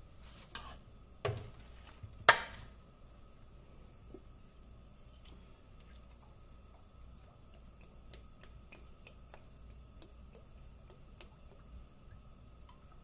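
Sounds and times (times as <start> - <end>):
low steady hum: 0.0 - 13.0
oil ticking in skillet: 6.6 - 13.0.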